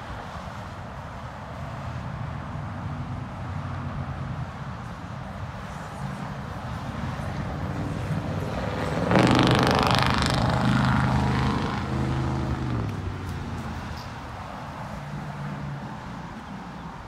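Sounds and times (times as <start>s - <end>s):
background traffic rumble: 0.0s - 17.0s
vehicle passing close by: 5.8s - 14.1s.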